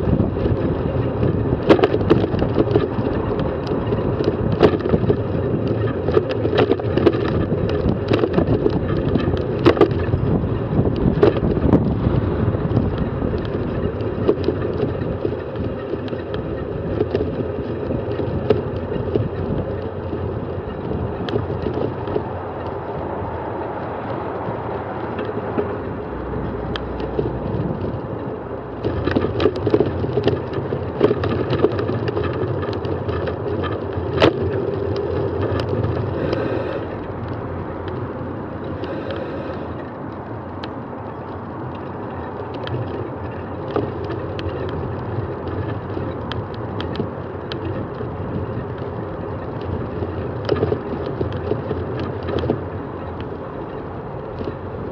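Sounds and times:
bike rattling and clicking: 0.0s - 54.9s
tyre and wind noise: 0.0s - 54.9s.

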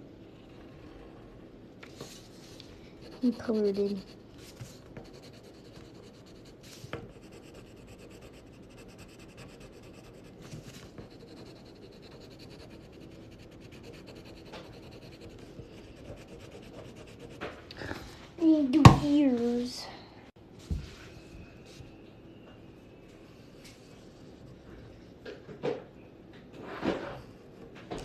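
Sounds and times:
pencil scratching on paper: 2.0s - 17.7s.

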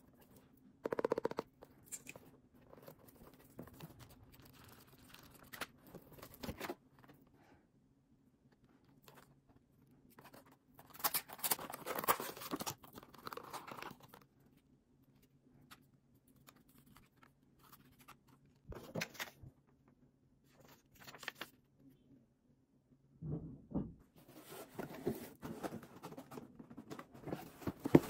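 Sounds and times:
plastic packaging crackling and tearing: 10.8s - 14.2s.

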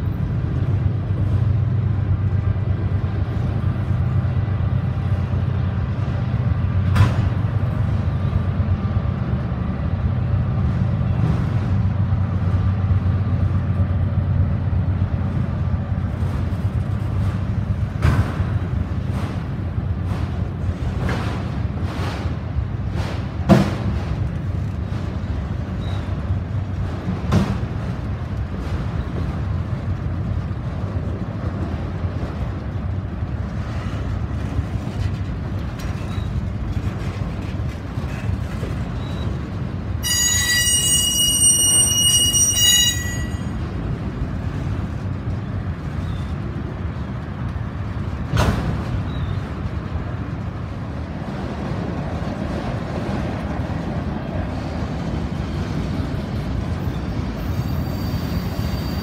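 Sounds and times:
train wheels rumbling on rail: 0.0s - 59.0s
high wheel squeal: 40.0s - 43.6s, 56.8s - 59.0s.

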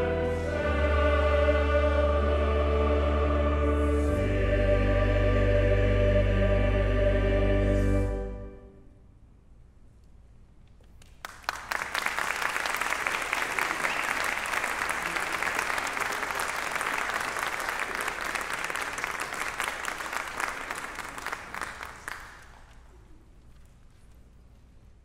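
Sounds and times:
music: 0.0s - 9.1s
audience applauding: 11.0s - 22.9s.

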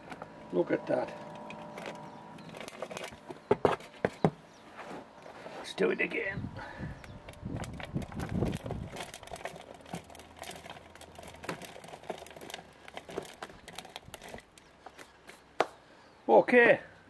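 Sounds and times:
potting soil crackling and rustling: 4.6s - 15.6s.

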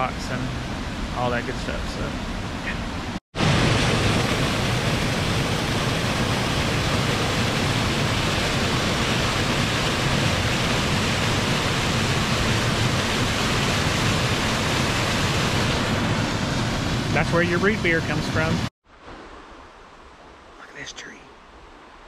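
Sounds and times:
small waterfall rushing: 3.4s - 19.7s.

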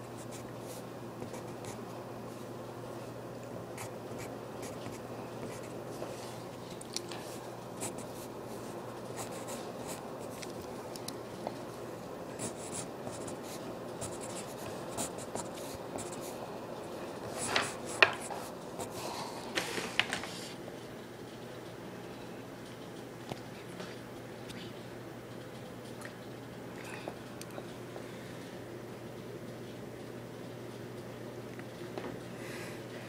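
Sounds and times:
pencil scratching on paper: 7.8s - 10.4s, 12.4s - 16.4s.

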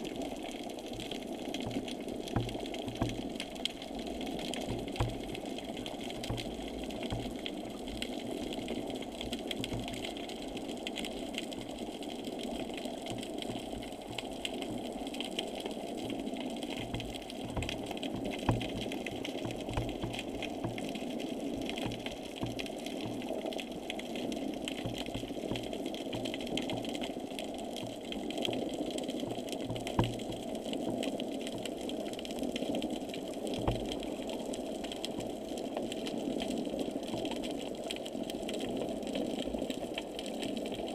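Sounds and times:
muffled underwater hiss and rumble: 0.0s - 40.9s
low knocks: 16.8s - 20.8s.

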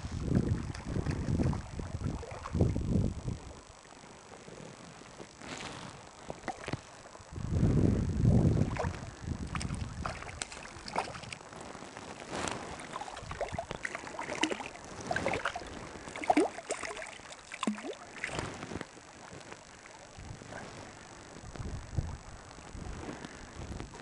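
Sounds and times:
fish splashing in shallow water: 0.4s - 2.8s, 5.0s - 7.3s, 8.5s - 20.2s.

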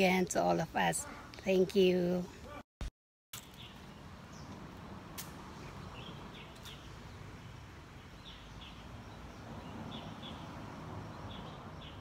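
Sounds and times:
small birds chirping: 3.4s - 12.0s.

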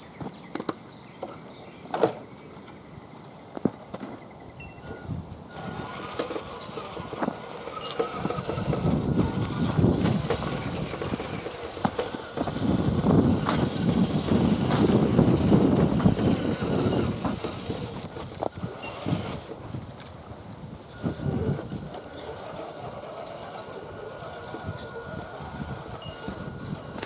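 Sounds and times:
faint steady whine: 2.4s - 27.0s
rc car motor and gears whirring: 4.8s - 27.0s
tyres crunching over gravel: 5.5s - 20.0s, 20.6s - 27.0s.

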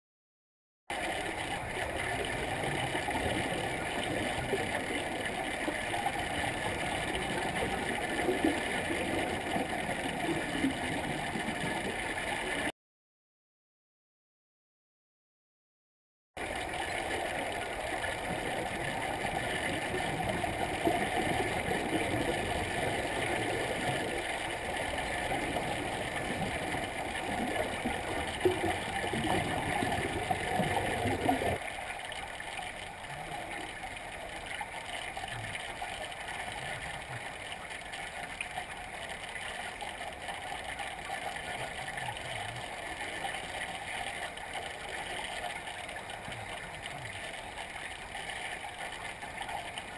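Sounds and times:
divers' exhaled air bubbling: 0.9s - 12.7s, 16.4s - 31.6s.

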